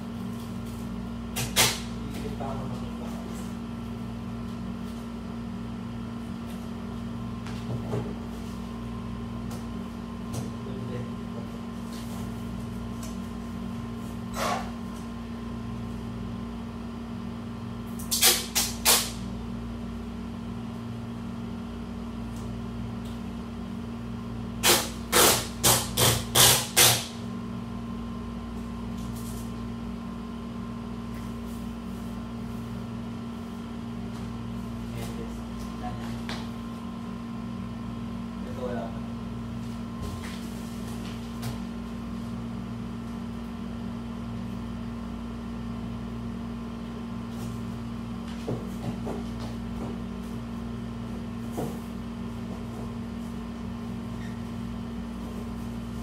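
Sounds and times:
duct tape ripping: 0:18.1 - 0:19.2, 0:24.6 - 0:27.1.

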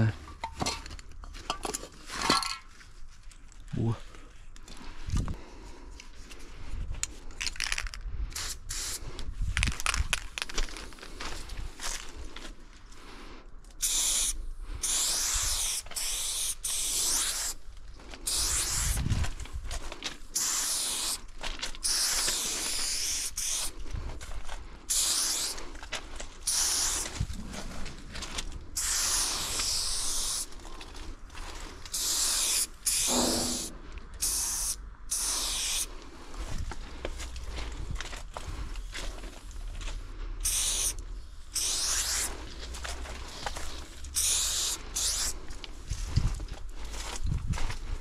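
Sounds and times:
spray paint can hissing: 0:08.4 - 0:09.0, 0:13.8 - 0:17.6, 0:18.2 - 0:19.1, 0:20.4 - 0:23.7, 0:24.9 - 0:25.6, 0:26.4 - 0:27.5, 0:28.7 - 0:30.6, 0:31.9 - 0:35.9, 0:40.4 - 0:42.4, 0:44.2 - 0:45.4.

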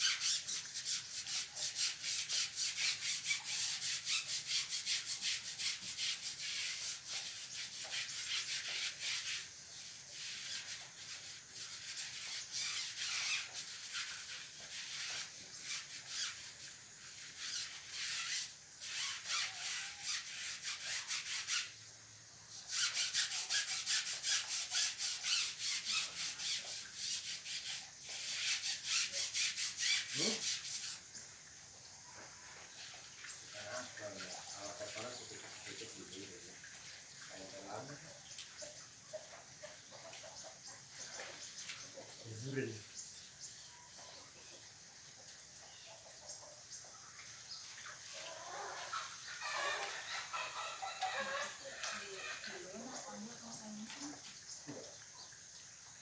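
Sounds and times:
scrubbing on rubber tyre: 0:00.0 - 0:21.9, 0:22.5 - 0:31.3, 0:32.0 - 0:43.1.

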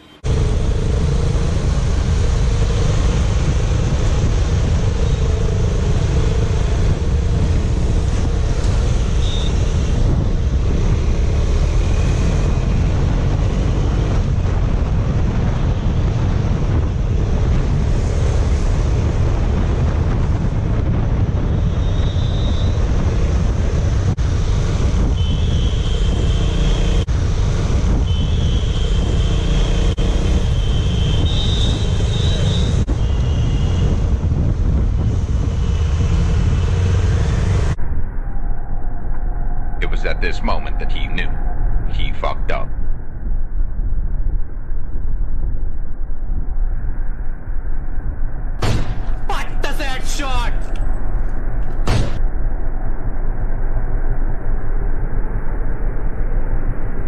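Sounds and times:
wind buffeting microphone: 0:00.2 - 0:29.3, 0:29.9 - 0:40.0.

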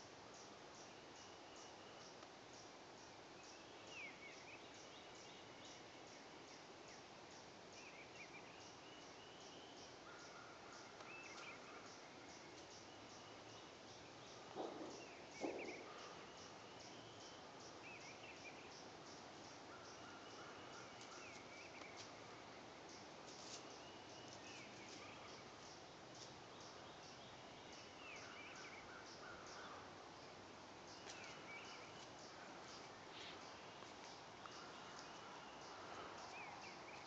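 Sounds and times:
faint distant bird calls: 0:00.0 - 0:37.0
light ticks and rustles: 0:08.6 - 0:37.0.

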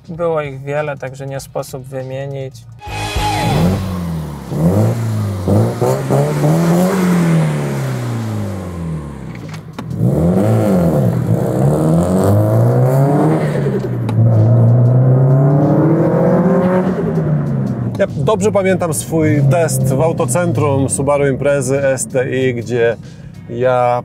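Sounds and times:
turbocharged car engine revving: 0:02.8 - 0:18.2.

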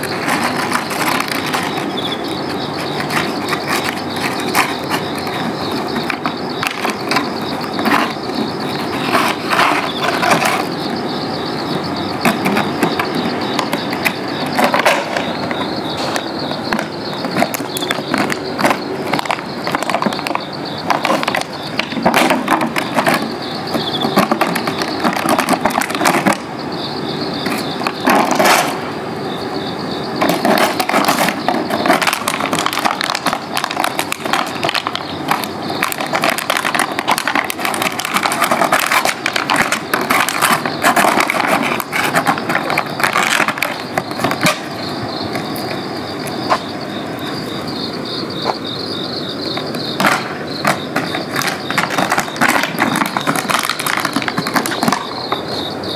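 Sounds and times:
plastic box scraping on concrete: 0:00.0 - 0:10.9, 0:30.2 - 0:47.7, 0:49.5 - 0:55.3.

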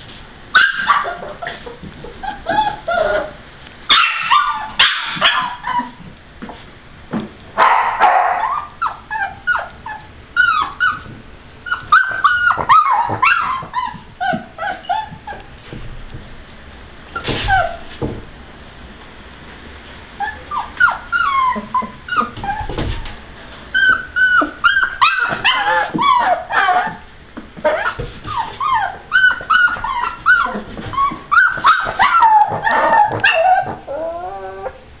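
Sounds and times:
puppy whimpering and yipping: 0:00.6 - 0:06.1, 0:08.4 - 0:15.5, 0:17.2 - 0:17.9, 0:20.2 - 0:22.9, 0:23.7 - 0:34.8.

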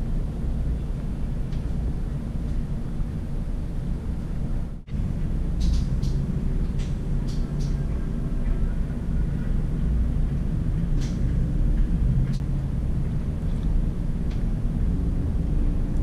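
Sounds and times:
low rumbling background noise: 0:00.0 - 0:16.0.

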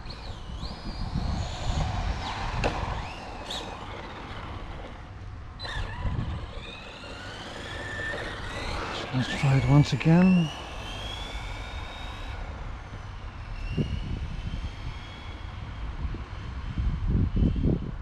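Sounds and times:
electric motor whining: 0:00.0 - 0:17.6.

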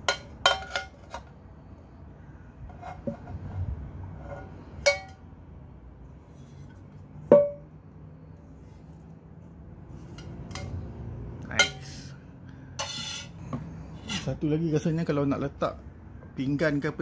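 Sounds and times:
metal pot clinking in wok: 0:04.8 - 0:05.2.

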